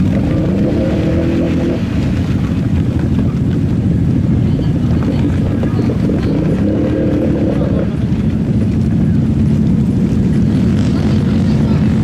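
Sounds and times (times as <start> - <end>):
atv engines running: 0.0 - 12.0.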